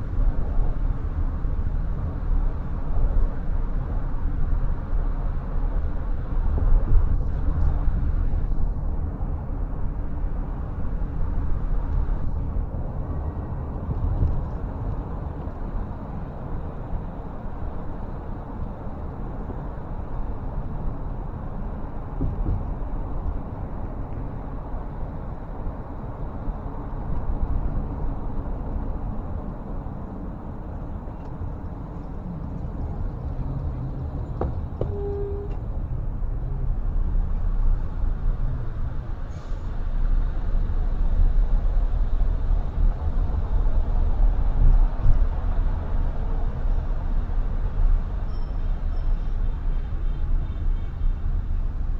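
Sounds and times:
car road noise: 0:00.0 - 0:51.9
short faint tone: 0:34.9 - 0:35.6.

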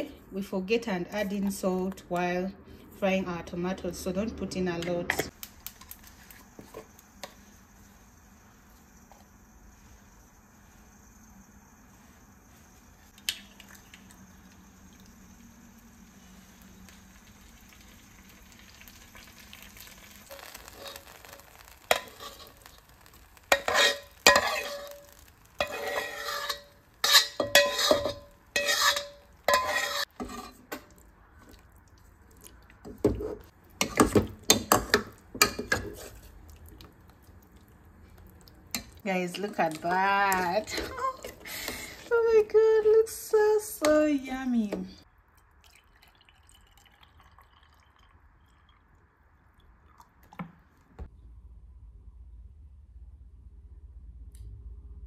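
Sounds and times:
metal spatula scraping a wok: 0:20.3 - 0:30.9, 0:33.1 - 0:36.3
metal spoon stirring in a pot: 0:20.3 - 0:31.6, 0:32.2 - 0:36.9, 0:38.1 - 0:42.1.

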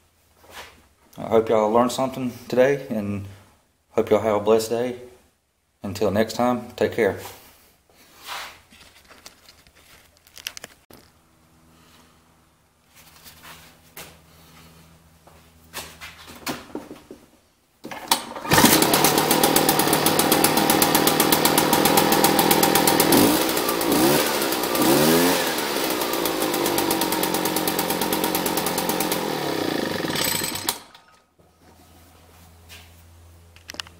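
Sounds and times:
leaf blower engine revving: 0:17.9 - 0:31.1.

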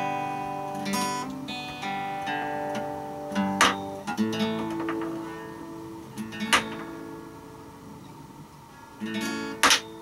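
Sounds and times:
acoustic guitar strumming: 0:00.0 - 0:10.0.

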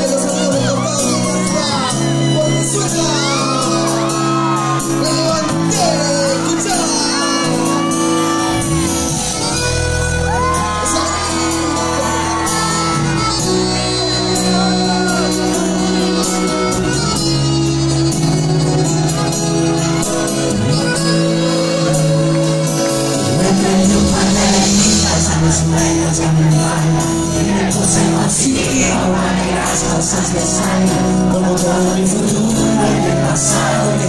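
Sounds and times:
crowd and performer shouting: 0:00.0 - 0:18.0
loud live concert music: 0:00.0 - 0:34.0.

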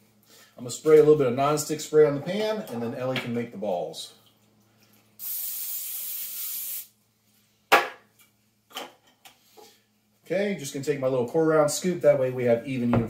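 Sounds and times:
aerosol can spraying: 0:05.2 - 0:06.9.

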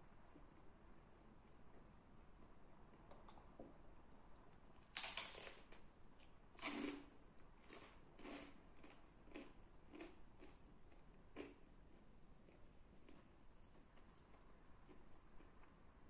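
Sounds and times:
crunchy bites: 0:04.8 - 0:05.8
person chewing: 0:06.6 - 0:11.6.

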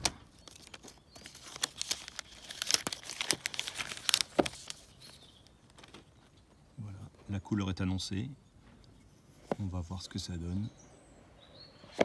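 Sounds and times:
plastic shrink-wrap tearing and crinkling: 0:00.0 - 0:06.1.

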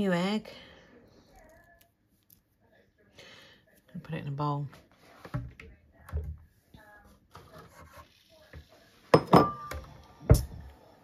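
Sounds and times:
ceramic bowl clinking: 0:09.1 - 0:09.9.

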